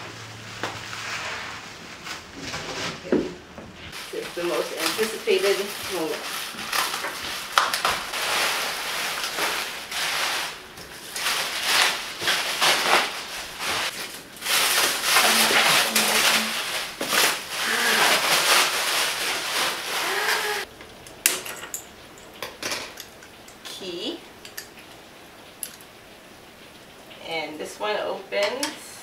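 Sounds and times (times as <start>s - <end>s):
plastic wrap crinkling: 0.4s - 20.7s.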